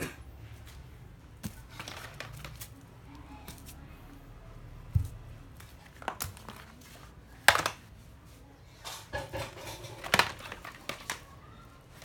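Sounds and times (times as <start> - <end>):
plastic tools knocking and rattling: 1.4 - 2.7, 5.8 - 7.9, 8.9 - 11.3.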